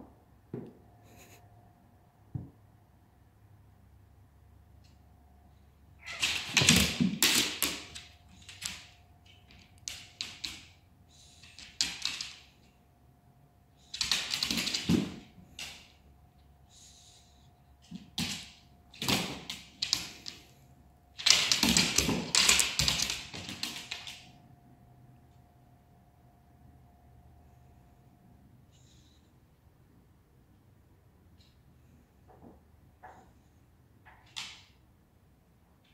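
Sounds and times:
dog paws clattering on hard floor: 11.4s - 12.6s, 14.0s - 16.0s, 21.2s - 24.3s.

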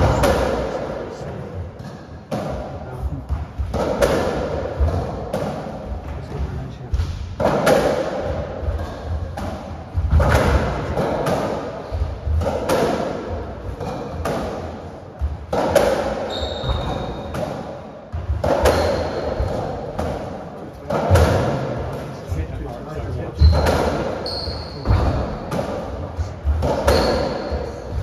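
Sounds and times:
ball hitting court walls: 0.0s - 0.9s, 1.7s - 22.1s, 23.4s - 28.0s
racquets striking ball: 0.0s - 0.9s, 1.7s - 22.1s, 23.4s - 24.2s, 24.8s - 28.0s.

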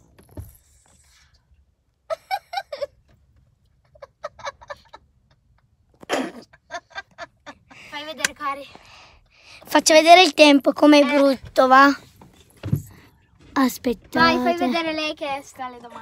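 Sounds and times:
girl giggling: 2.1s - 3.0s.

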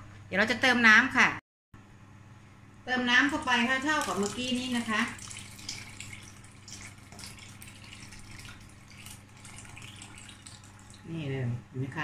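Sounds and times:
water pouring into a pot: 3.3s - 11.1s.

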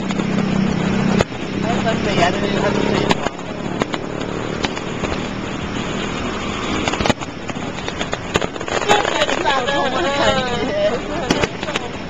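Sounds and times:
idling cars and traffic: 0.0s - 12.0s
distant fireworks bursting: 3.0s - 9.6s, 11.2s - 12.0s.

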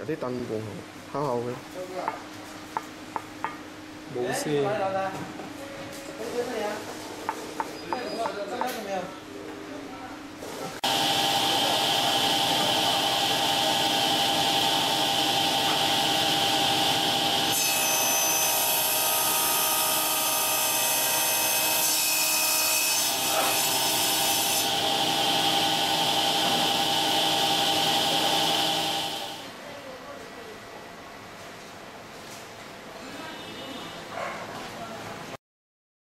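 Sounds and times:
saw blade cutting plastic: 10.8s - 29.3s
table saw blade whining: 10.8s - 29.4s.

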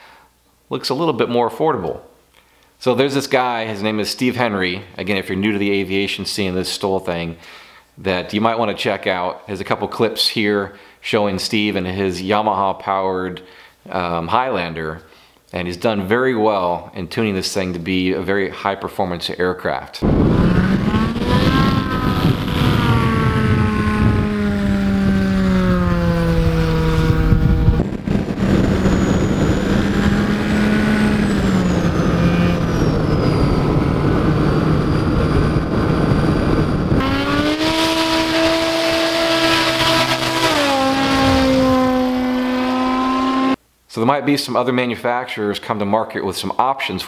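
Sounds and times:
snowmobile engine driving propeller: 20.0s - 43.6s.

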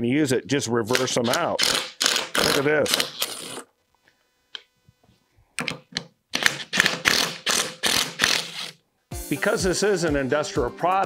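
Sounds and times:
cordless screwdriver running: 0.9s - 3.7s, 6.4s - 8.8s.

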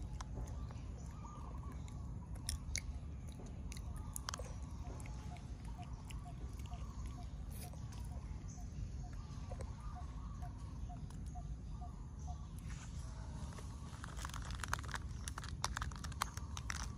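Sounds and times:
crisp clicks and crunches: 0.0s - 8.2s, 13.4s - 16.9s
monkey chewing and biting food: 0.0s - 8.5s, 13.6s - 16.9s
low background rumble: 0.0s - 16.9s.

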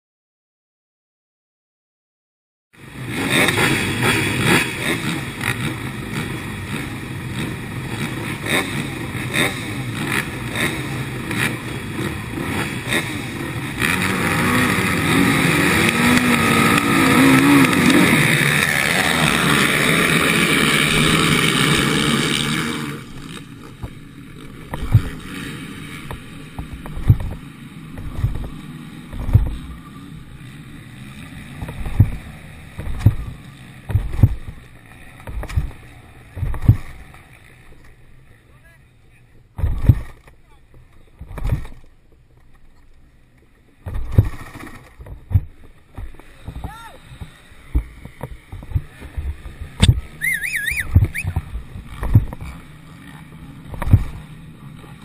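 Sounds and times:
quad engines revving: 2.8s - 55.0s
low thumps: 24.7s - 25.2s, 26.0s - 29.8s, 31.6s - 34.6s, 35.2s - 37.0s, 45.0s - 52.5s.

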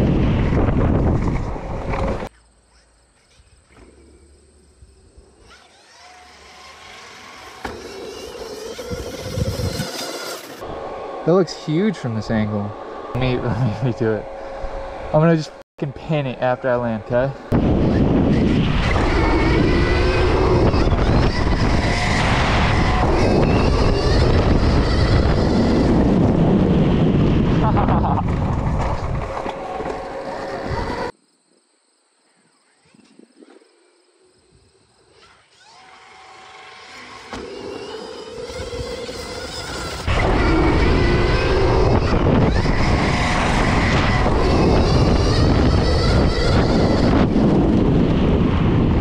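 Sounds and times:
wind rush on microphone: 0.0s - 2.3s, 8.7s - 11.2s, 17.4s - 31.1s, 38.5s - 49.0s
electric motor whine: 5.4s - 31.1s, 35.1s - 49.0s.

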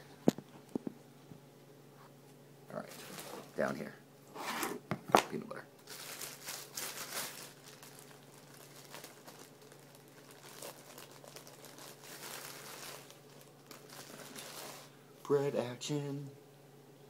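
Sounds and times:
plastic bag crinkling: 2.8s - 3.8s, 5.8s - 15.0s.

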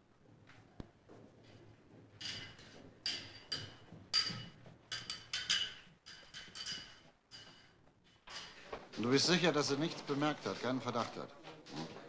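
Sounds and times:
footsteps on metal staircase: 6.1s - 12.0s.

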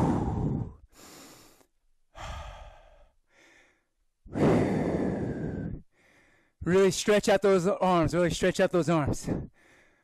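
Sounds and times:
man breathing hard: 0.0s - 6.6s, 9.2s - 10.0s.

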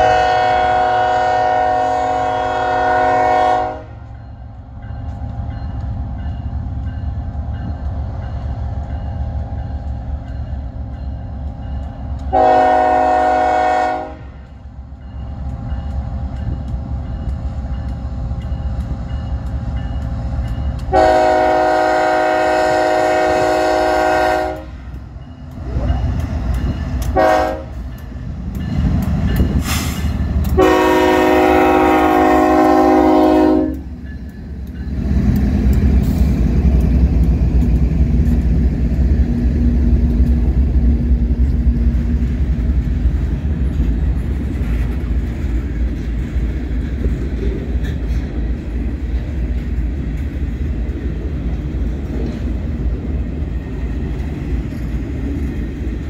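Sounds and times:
locomotive air horn blasts: 0.0s - 4.0s, 12.3s - 14.4s, 20.9s - 24.8s, 27.1s - 27.8s, 30.6s - 33.8s
freight cars rumbling on rails: 0.0s - 56.0s.

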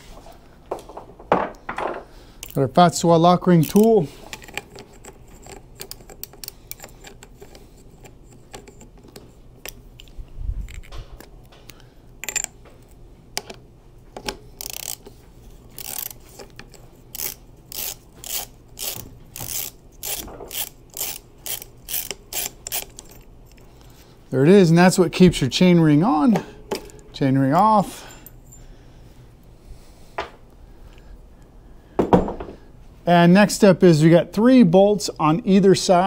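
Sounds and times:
ratchet wrench clicking: 3.6s - 8.9s, 14.5s - 15.1s, 15.7s - 23.6s.

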